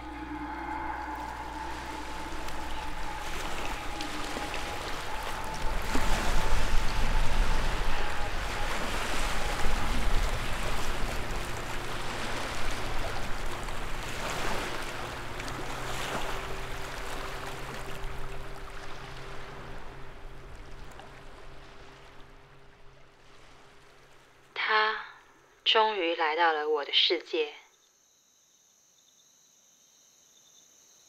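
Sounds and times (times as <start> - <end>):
rushing noise: 0.0 - 20.8
faint low sustained tones: 0.0 - 23.0.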